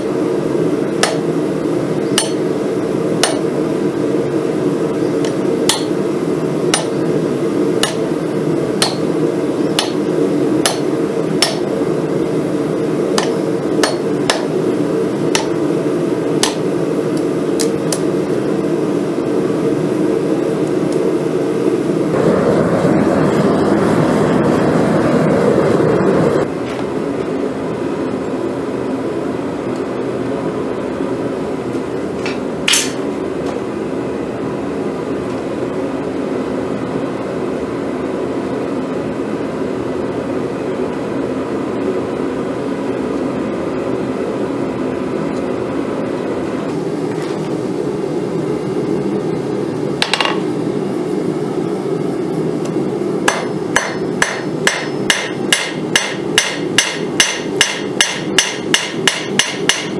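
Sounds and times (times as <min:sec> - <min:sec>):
gas forge roar: 0:00.0 - 0:37.8
hammer striking steel on anvil: 0:01.0 - 0:01.4, 0:02.1 - 0:02.6, 0:03.2 - 0:03.6, 0:05.2 - 0:06.1, 0:06.7 - 0:07.0, 0:07.8 - 0:08.2, 0:08.8 - 0:11.8, 0:13.2 - 0:14.6, 0:15.3 - 0:15.6, 0:16.4 - 0:16.8, 0:32.7 - 0:33.0, 0:50.0 - 0:50.5, 0:53.3 - 0:59.9.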